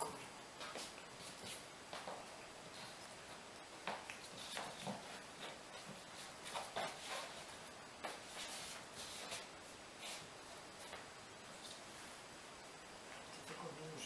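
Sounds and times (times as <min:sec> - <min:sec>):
footsteps on laminate floor: 0:00.6 - 0:02.4, 0:03.2 - 0:09.5.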